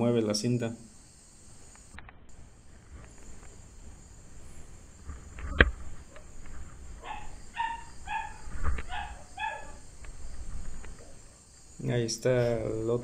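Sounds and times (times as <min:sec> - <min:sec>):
wind buffeting microphone: 0:05.0 - 0:11.1
dog barking: 0:07.0 - 0:09.8.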